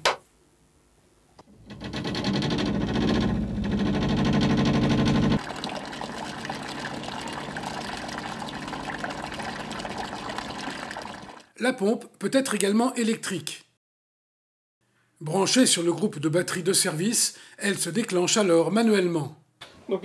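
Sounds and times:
cooling water splashing: 5.4 - 11.5.

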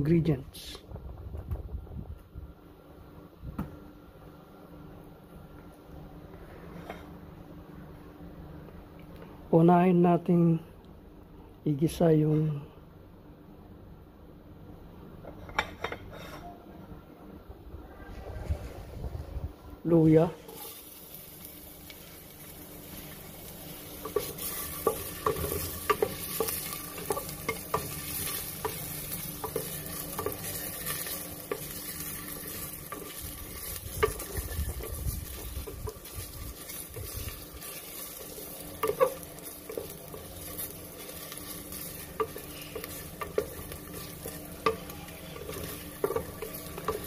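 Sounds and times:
ginger sizzling in oil: 20.4 - 47.0.

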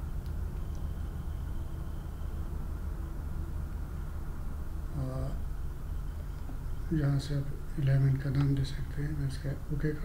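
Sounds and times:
low background rumble and hum: 0.0 - 10.0.

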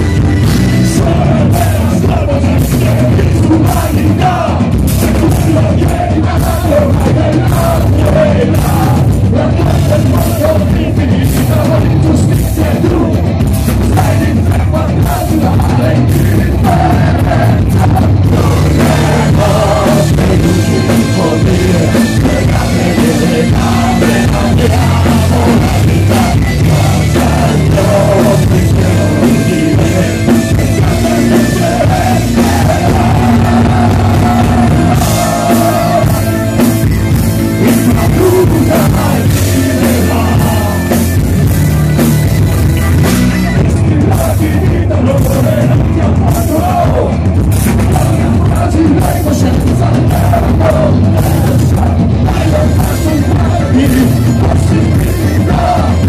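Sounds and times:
drums hitting hard: 0.0 - 56.0
folk-rock band playing: 0.0 - 56.0
person singing: 13.8 - 36.8, 37.6 - 41.8, 42.8 - 56.0.

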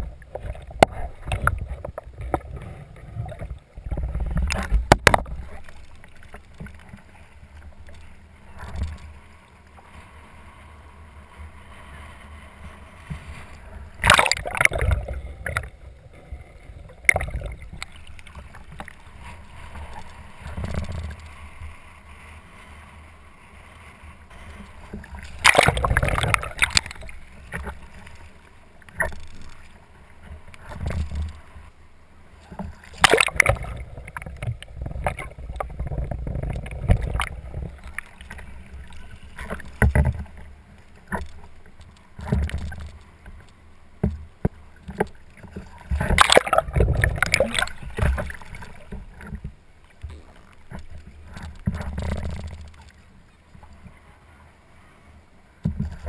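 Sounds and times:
muffled underwater water churning: 0.0 - 56.0
loud water splashing: 14.0 - 15.6, 25.3 - 27.1, 33.0 - 34.3, 46.0 - 48.6.

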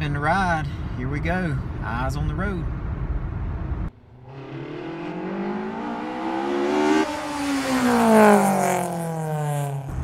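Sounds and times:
car engine accelerating: 3.3 - 10.0.

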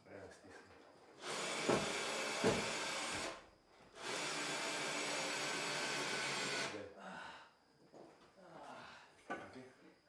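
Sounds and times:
power drill driving screw into wood: 1.2 - 3.4, 4.0 - 6.8.

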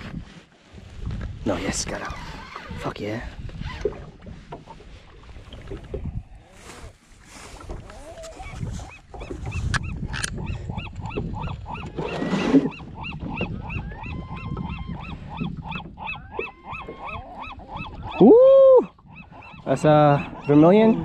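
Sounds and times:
animal calling: 7.9 - 21.0.

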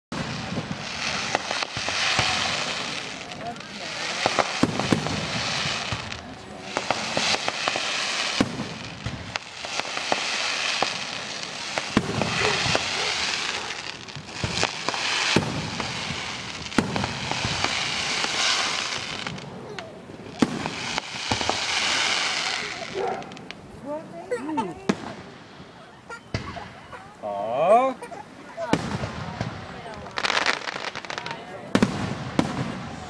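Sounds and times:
firework shells bursting: 0.1 - 23.7
constant rushing hiss: 0.1 - 33.0.

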